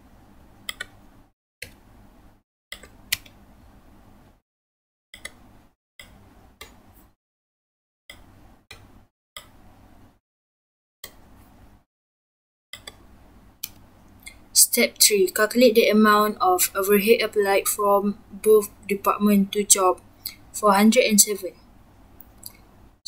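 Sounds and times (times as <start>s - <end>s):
faint hum: 12.8s - 23.0s.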